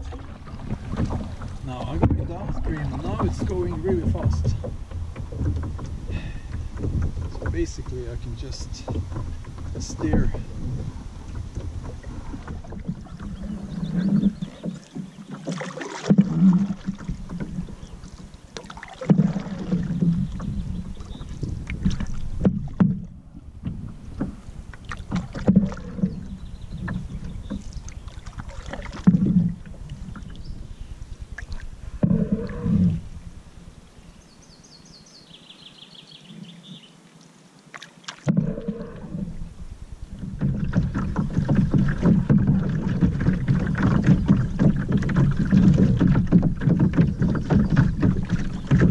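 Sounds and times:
water washing along hull: 0.0 - 33.9, 37.7 - 48.9
paddle strokes splashing: 0.0 - 34.0, 37.0 - 48.9.

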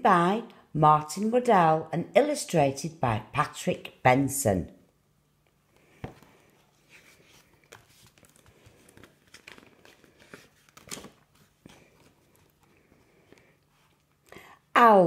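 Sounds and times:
book pages rustling: 5.6 - 14.2.

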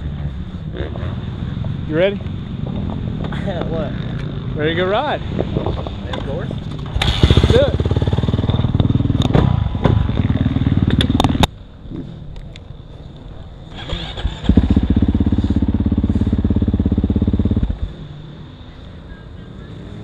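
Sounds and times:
dirt bike engine running: 6.7 - 11.5, 13.8 - 18.2.

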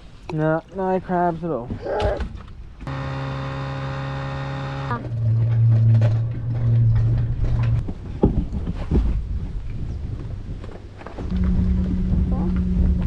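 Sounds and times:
outboard motor running: 2.9 - 5.2
low engine hum: 2.9 - 7.9, 11.2 - 13.0.

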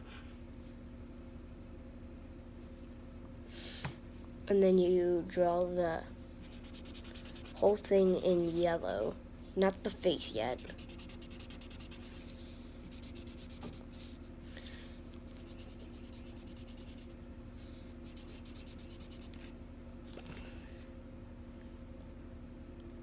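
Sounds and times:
marker scribbling on paper: 6.4 - 7.7, 10.6 - 12.2, 12.8 - 13.8, 15.4 - 17.1, 18.0 - 19.4.

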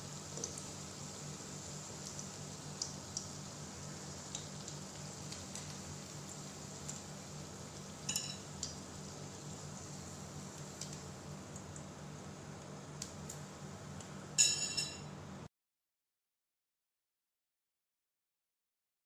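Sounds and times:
meat sizzling in oil: 0.0 - 14.3
metal fork clinking on pan: 8.1 - 8.5, 14.4 - 15.1.

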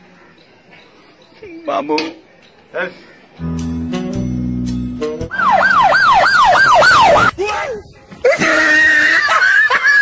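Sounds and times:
siren-like wavering wail: 5.3 - 7.3.

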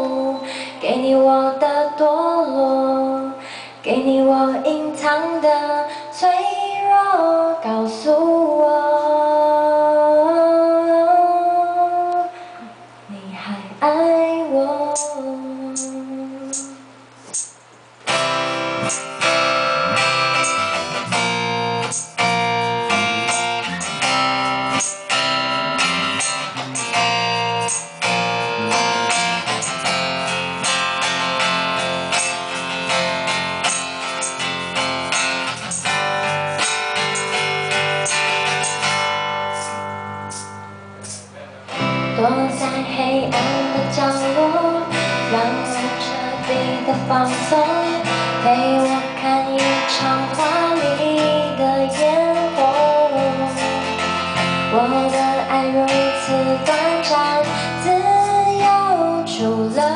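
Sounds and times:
strummed acoustic guitar: 14.9 - 59.9
electric bass: 18.1 - 48.5
bending melody line: 18.7 - 41.1.

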